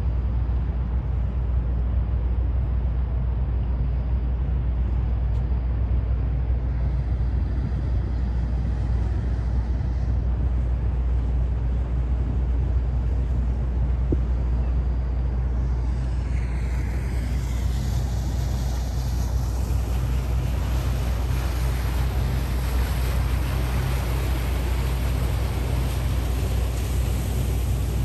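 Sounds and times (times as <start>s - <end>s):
churning boat wake: 0.0s - 28.0s
wind on microphone: 0.1s - 28.0s
motorboat engine passing: 6.5s - 28.0s.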